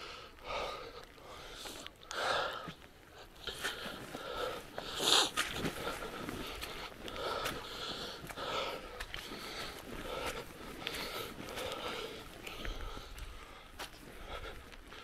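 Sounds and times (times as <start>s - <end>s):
person breathing heavily: 0.0s - 15.0s.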